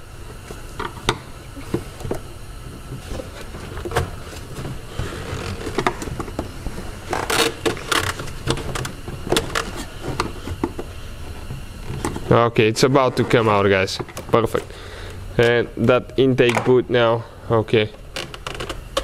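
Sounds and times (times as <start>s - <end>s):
scraping and rustling: 2.8s - 14.7s.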